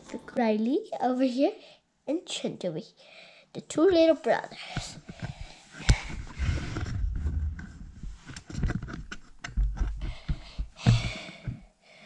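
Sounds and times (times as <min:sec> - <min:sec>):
camera handling rumble: 0:05.2 - 0:10.0.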